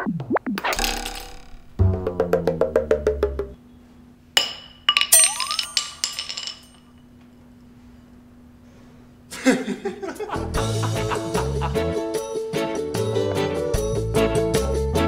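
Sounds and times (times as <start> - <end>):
comedy music with rhythmic hits: 0.0 - 3.6, 10.3 - 15.0
clinking glassy sound effects: 4.4 - 7.0.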